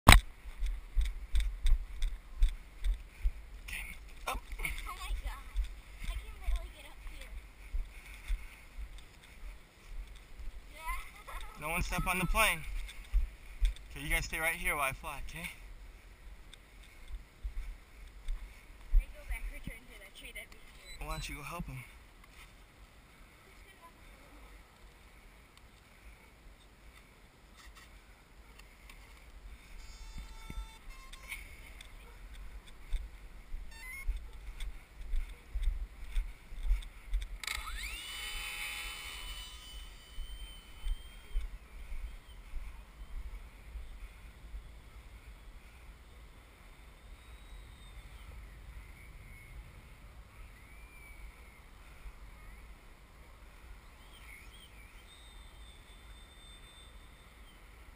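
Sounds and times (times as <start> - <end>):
wind buffeting microphone: 31.5 - 37.4
model airplane motor whine: 37.4 - 41.2.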